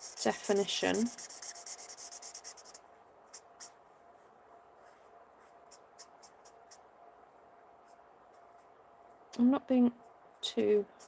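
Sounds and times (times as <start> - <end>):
marker scratching on cardstock: 0.0 - 3.7, 5.4 - 6.8.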